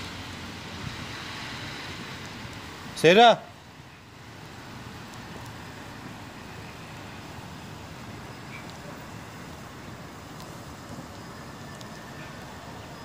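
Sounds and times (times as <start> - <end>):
outdoor background hiss: 0.0 - 13.0
faint ticks: 10.3 - 12.5.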